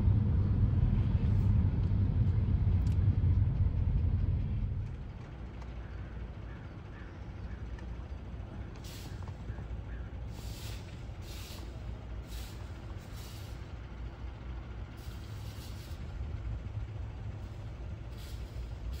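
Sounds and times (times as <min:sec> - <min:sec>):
low rumble: 0:00.0 - 0:06.5.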